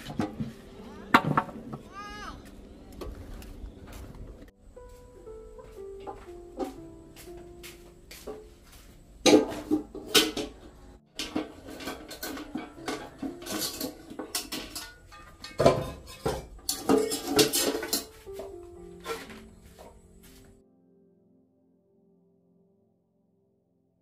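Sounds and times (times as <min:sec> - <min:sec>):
pots and pans clattering: 0:00.0 - 0:01.8, 0:09.2 - 0:20.0.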